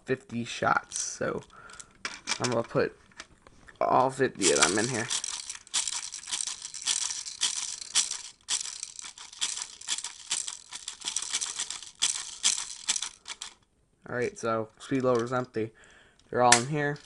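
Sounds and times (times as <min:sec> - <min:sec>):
plastic pellets pouring rattle: 0:04.4 - 0:13.6.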